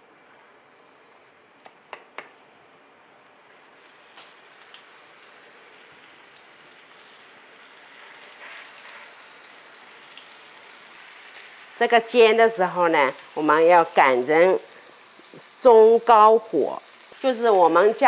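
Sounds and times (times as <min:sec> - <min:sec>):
meat sizzling in hot oil: 0:03.6 - 0:18.0.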